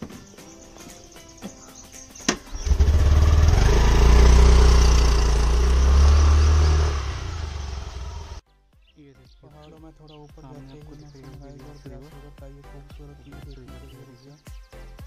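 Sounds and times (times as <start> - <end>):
scooter engine running: 2.3 - 8.4.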